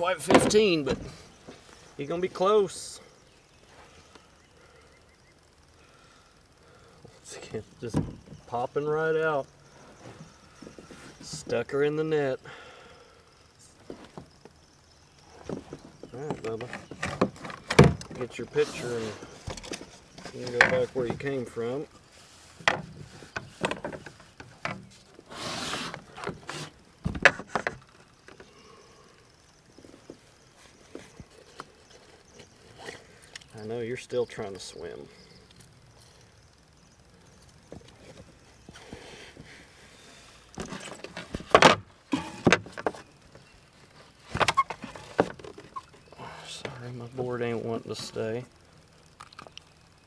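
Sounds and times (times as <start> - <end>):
short hiss: 25.2 - 26.8.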